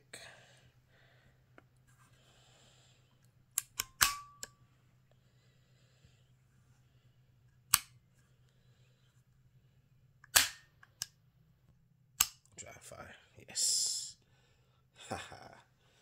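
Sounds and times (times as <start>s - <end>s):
air pistol mechanism clicking: 3.6s - 4.6s, 7.7s - 8.0s, 10.2s - 11.2s, 12.2s - 12.5s.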